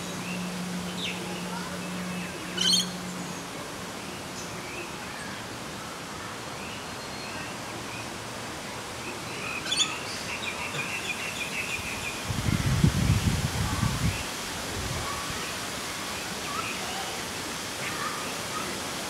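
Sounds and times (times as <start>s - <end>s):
outdoor background hiss: 0.0s - 19.0s
bird chirps: 2.5s - 3.0s.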